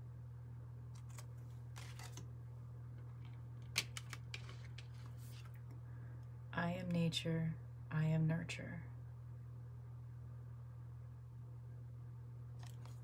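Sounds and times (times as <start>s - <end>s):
low hum: 0.0s - 13.0s
cards sliding and tapping on table: 1.0s - 2.2s.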